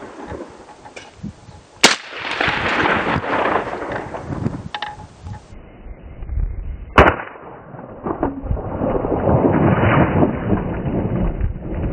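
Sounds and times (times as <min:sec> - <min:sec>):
rifle shot: 0:01.8 - 0:04.3, 0:07.0 - 0:10.4.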